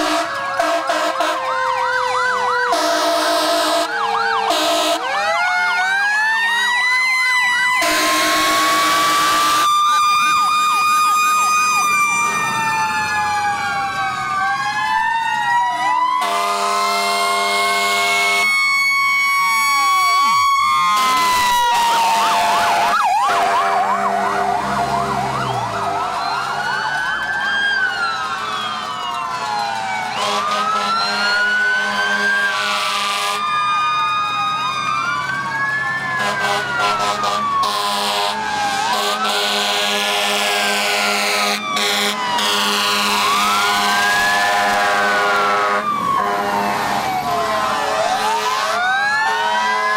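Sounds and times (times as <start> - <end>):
long horn blasts: 0.0 - 1.5, 2.7 - 5.1, 7.8 - 9.7, 16.2 - 18.5, 30.2 - 33.4, 36.2 - 46.7, 47.4 - 49.9
fire truck sirens wailing: 0.0 - 49.9.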